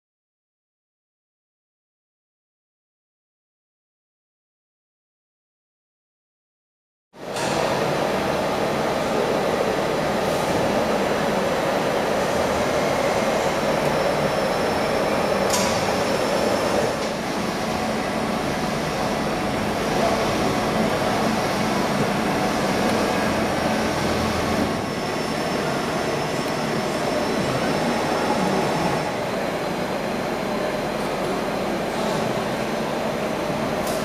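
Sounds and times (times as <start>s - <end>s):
machining centre whirring: 7.2s - 34.0s.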